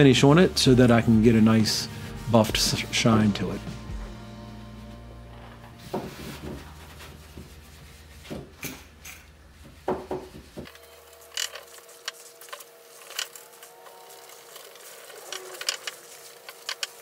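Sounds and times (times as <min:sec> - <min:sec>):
cloth rubbing wax on wood: 0:04.7 - 0:08.6, 0:09.5 - 0:17.0.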